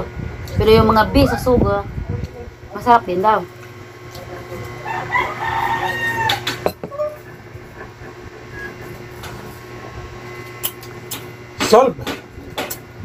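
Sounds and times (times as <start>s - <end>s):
steady low hum: 0.0s - 13.0s
domestic animal calling: 4.8s - 9.0s.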